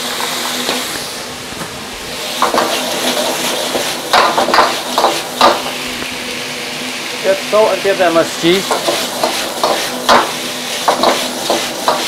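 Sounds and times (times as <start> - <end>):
food sizzling in a wok: 0.0 - 12.0
metal ladle scraping a wok: 10.6 - 12.0.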